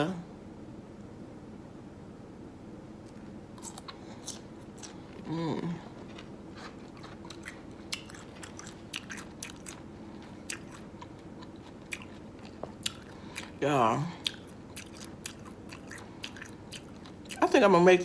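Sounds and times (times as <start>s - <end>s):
crunchy pickle chewing: 3.0s - 13.6s, 14.2s - 17.6s.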